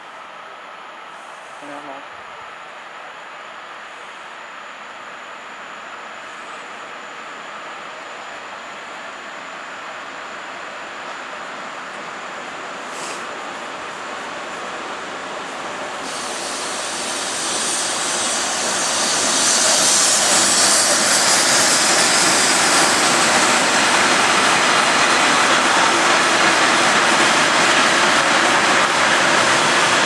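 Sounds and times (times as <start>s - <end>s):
train wheels rumbling on rails: 11.0s - 30.0s.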